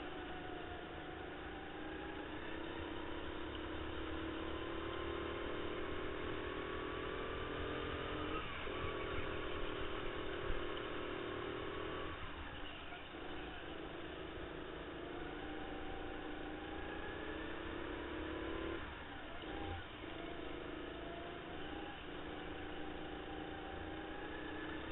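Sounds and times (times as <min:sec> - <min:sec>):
kart engine revving: 0:00.0 - 0:24.9.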